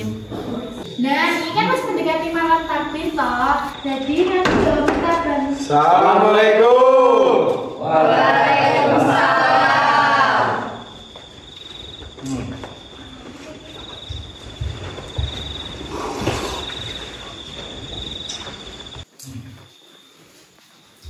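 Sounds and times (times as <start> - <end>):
crickets chirping: 0.0 - 21.0.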